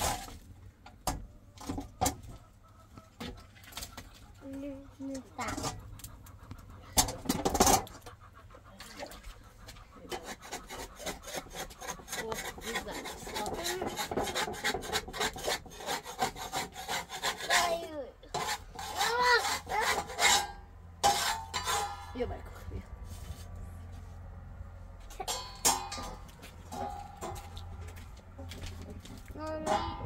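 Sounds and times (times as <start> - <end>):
rapid irregular scraping: 10.0 - 24.2.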